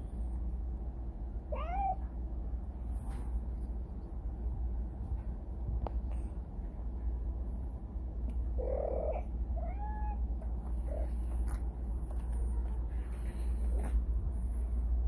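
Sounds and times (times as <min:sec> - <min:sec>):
steady low hum: 0:00.0 - 0:15.0
cat meowing: 0:01.5 - 0:02.0, 0:08.6 - 0:10.3.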